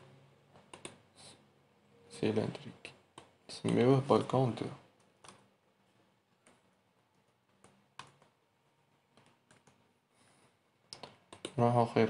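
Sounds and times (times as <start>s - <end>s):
soft keyboard keystrokes: 2.5s - 3.9s, 5.0s - 5.5s, 6.3s - 8.4s, 9.1s - 9.8s, 10.9s - 11.6s.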